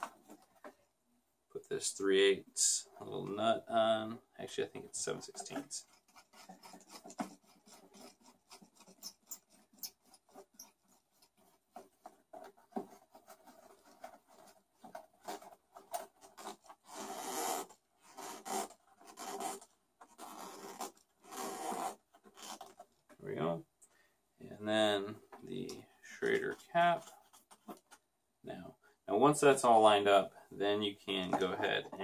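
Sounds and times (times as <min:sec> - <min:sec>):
plastic and metal parts scraping: 0:00.0 - 0:00.9, 0:04.9 - 0:17.0.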